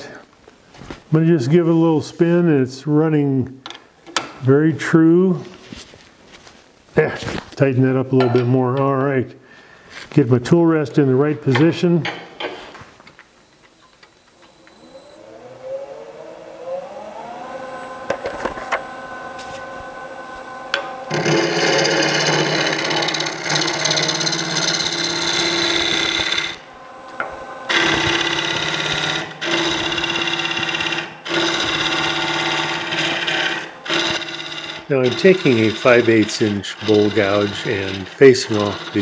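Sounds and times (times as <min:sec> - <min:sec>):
wood lathe motor whine: 0:14.2 - 0:39.0
gouge cutting wood: 0:21.1 - 0:26.6, 0:27.7 - 0:39.0.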